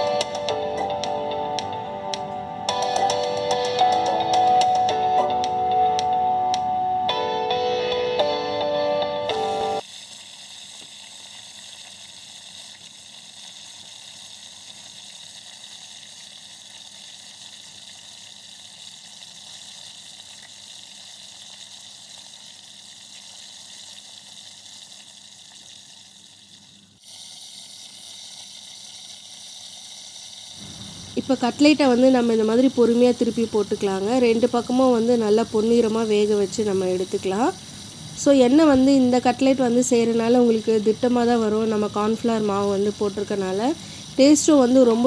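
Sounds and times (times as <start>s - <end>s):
oil sizzling in frying pan: 29.5s - 45.0s.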